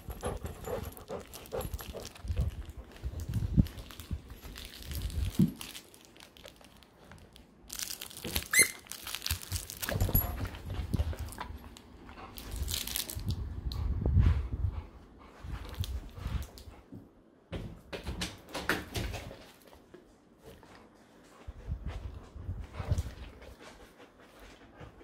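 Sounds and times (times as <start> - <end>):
fabric rustling and crinkling: 1.8 - 9.9
squeaker toy squeak: 8.4 - 8.9.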